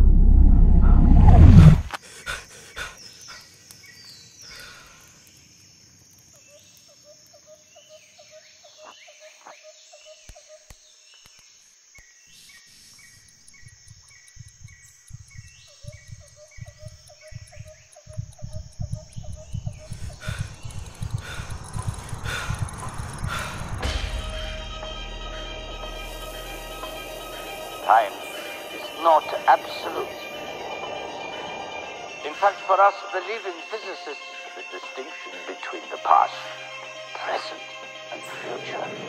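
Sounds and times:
loud low rumble: 0:00.0 - 0:01.9, 0:18.8 - 0:32.7
high insect drone: 0:01.9 - 0:39.0
falling bird-like chirps: 0:12.0 - 0:33.0
short chirping calls: 0:12.3 - 0:24.1
soft low thumps: 0:13.6 - 0:25.7.

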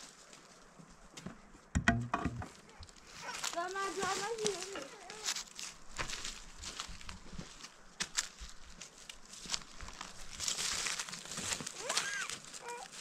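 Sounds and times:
footsteps in dry leaves: 0:00.0 - 0:00.8, 0:02.7 - 0:13.0.

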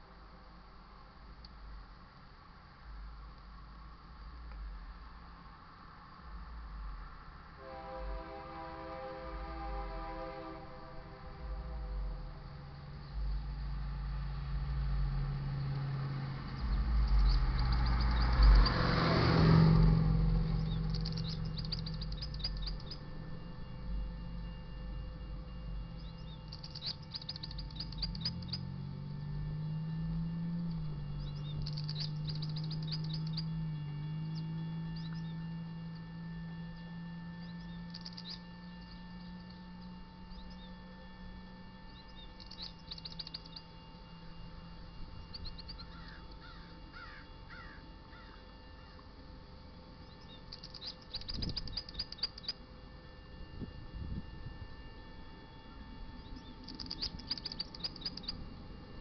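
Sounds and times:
low engine hum: 0:00.0 - 0:59.0
birds chirping: 0:12.2 - 0:53.1, 0:55.1 - 0:59.0.

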